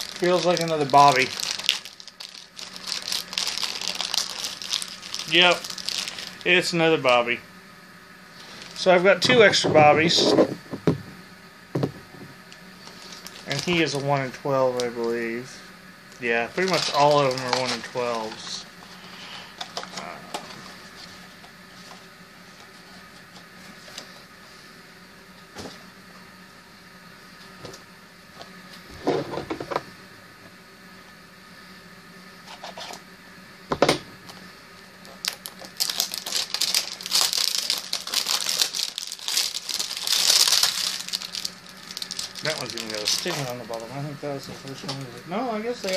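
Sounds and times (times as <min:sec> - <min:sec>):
packaging rustling and crinkling: 0:00.0 - 0:06.5, 0:12.8 - 0:14.0, 0:16.5 - 0:22.8, 0:35.0 - 0:43.9.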